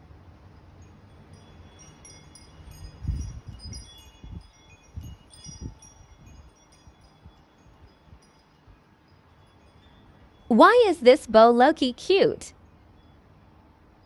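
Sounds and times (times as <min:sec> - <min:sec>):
tinkling chime tones: 0:00.8 - 0:11.8.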